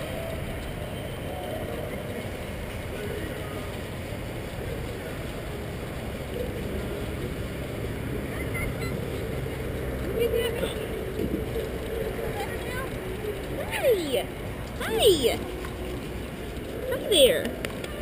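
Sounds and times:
faint distant voices: 0.0s - 18.0s
muffled rumble and rubbing: 4.4s - 18.0s.

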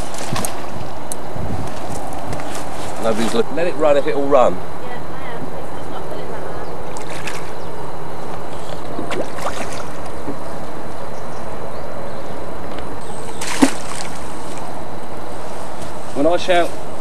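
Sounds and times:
steady background hiss: 2.0s - 17.0s
fish splashing in water: 6.9s - 7.6s, 8.7s - 10.5s, 13.2s - 14.7s.

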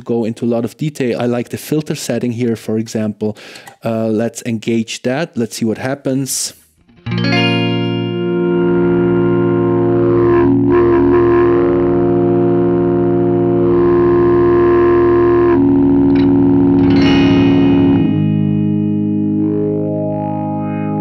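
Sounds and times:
sustained electric guitar chord: 7.0s - 21.0s.

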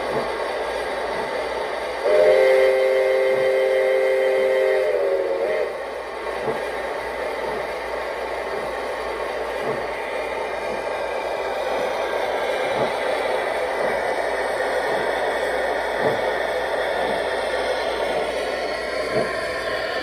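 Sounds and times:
model steam locomotive whistle: 2.0s - 5.8s.

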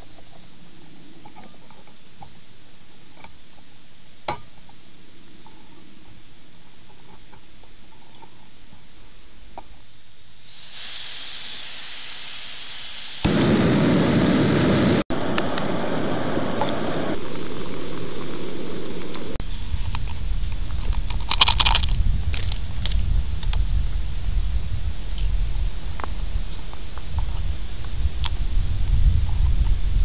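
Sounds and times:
gas hissing: 10.4s - 17.2s
burner flame rushing: 10.4s - 19.4s.

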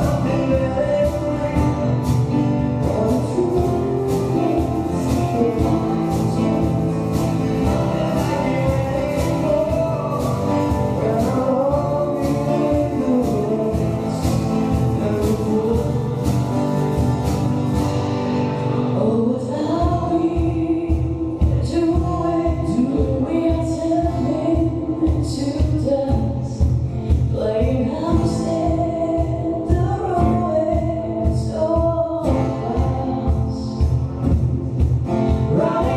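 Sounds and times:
person singing: 0.0s - 17.5s, 18.3s - 34.1s, 35.3s - 35.9s
steady drum beat: 0.0s - 18.6s, 19.8s - 35.9s
upright double bass: 0.0s - 20.6s, 28.0s - 35.9s
woman singing lead: 0.0s - 34.4s, 35.1s - 35.9s
acoustic guitar: 0.0s - 35.9s.

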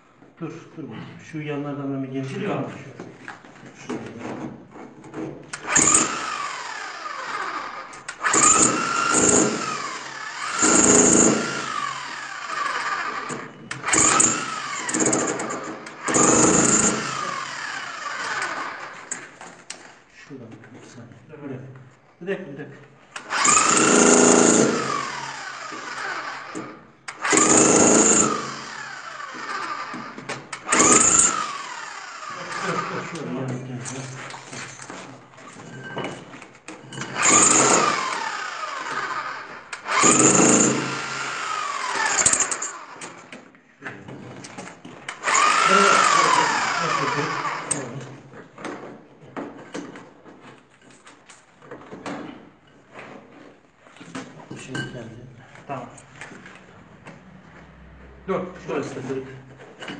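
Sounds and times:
hammer drill boring into concrete: 5.5s - 19.9s, 23.1s - 43.4s, 44.4s - 48.2s
drill motor winding down: 5.6s - 19.1s, 23.2s - 33.4s, 37.2s - 43.1s, 45.1s - 48.1s
knocks and scrapes in rubble: 33.6s - 37.8s.

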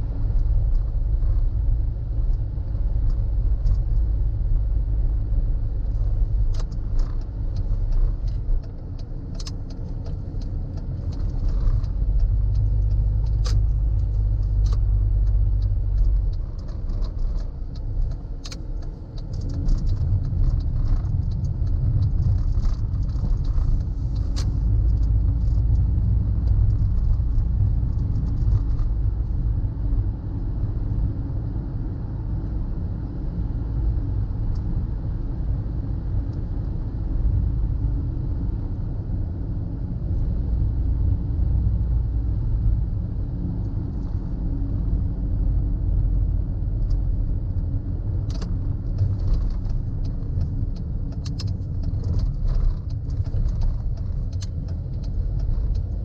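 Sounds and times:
car road and engine rumble: 0.0s - 56.0s
light clicks and rattles: 6.0s - 29.5s, 46.7s - 56.0s.

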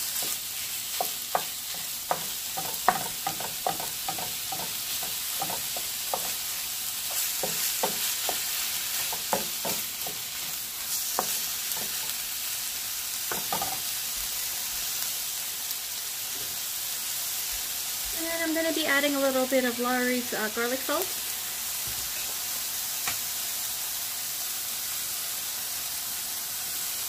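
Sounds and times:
wooden spoon scraping a pan: 0.0s - 12.2s
meat and onions sizzling in a skillet: 0.0s - 27.0s.

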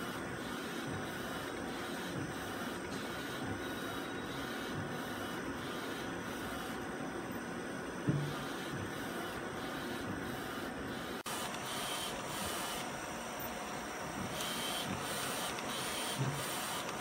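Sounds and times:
printer carriage whirring: 0.0s - 17.0s.

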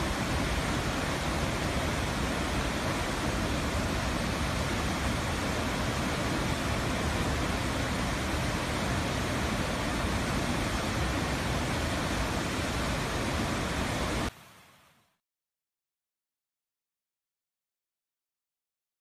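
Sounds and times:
waterfall rushing: 0.0s - 14.5s.

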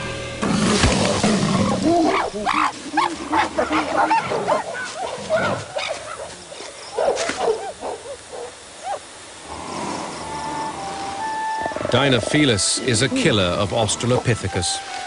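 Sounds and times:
primates shrieking and yelping: 1.1s - 9.1s.

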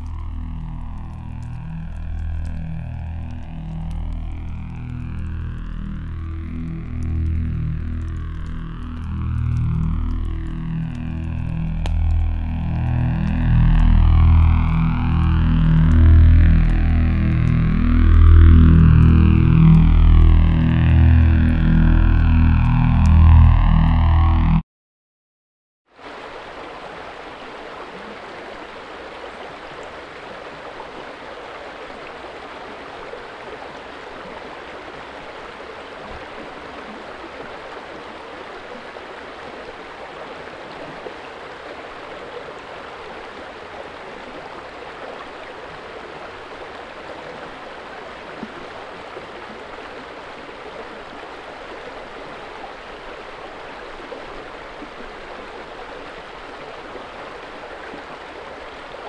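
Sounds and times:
river water rushing: 26.0s - 59.0s.

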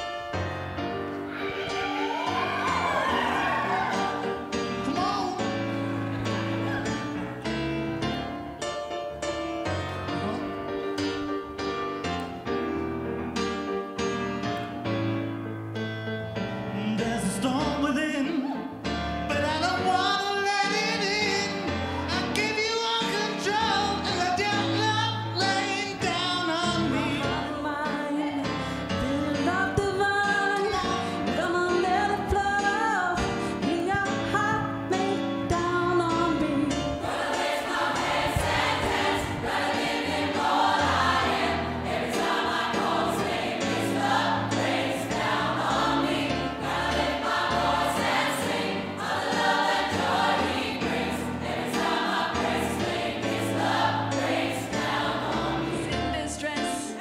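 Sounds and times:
choir singing: 1.2s - 8.4s, 19.6s - 32.8s, 36.1s - 57.0s
low keyboard notes: 4.1s - 19.7s
man singing: 16.7s - 18.6s, 19.3s - 27.3s
woman singing: 26.8s - 36.8s, 55.9s - 57.0s.

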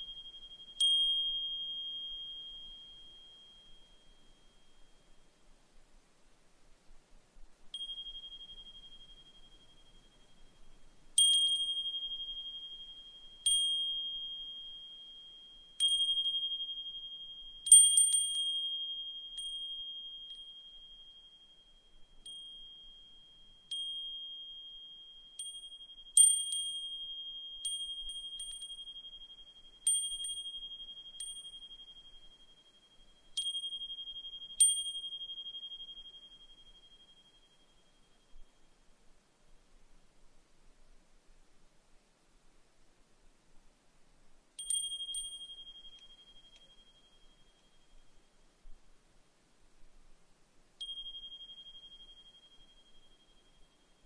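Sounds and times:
brass wind chime ringing: 44.6s - 48.4s, 50.8s - 54.0s.

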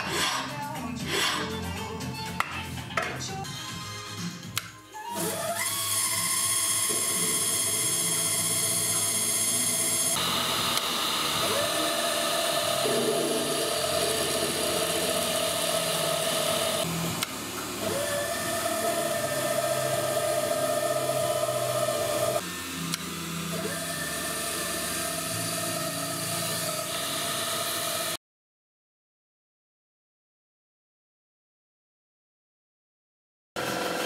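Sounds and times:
milling machine drilling brass: 5.2s - 28.2s.

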